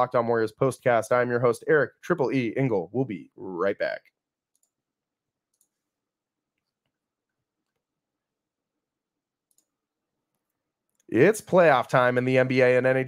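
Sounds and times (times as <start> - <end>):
very faint clicks: 9.5 - 9.7.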